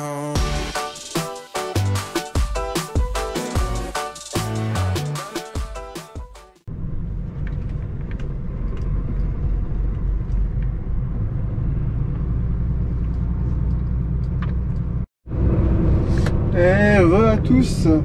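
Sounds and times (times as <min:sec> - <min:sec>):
diesel truck engine rumble: 0:06.7 - 0:18.0.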